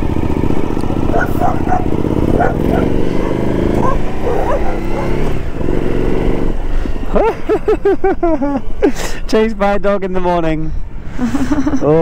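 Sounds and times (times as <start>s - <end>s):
motorcycle engine riding off: 0.0s - 8.6s
dog barking: 1.1s - 5.3s.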